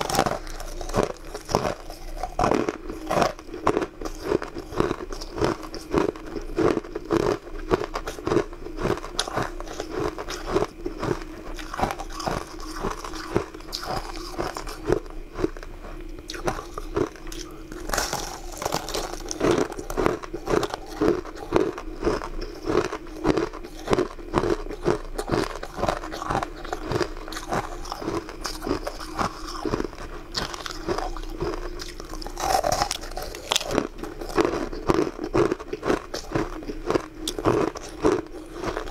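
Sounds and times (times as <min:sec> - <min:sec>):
chewing: 0:00.0 - 0:38.9
crunching hard candy: 0:00.0 - 0:38.9.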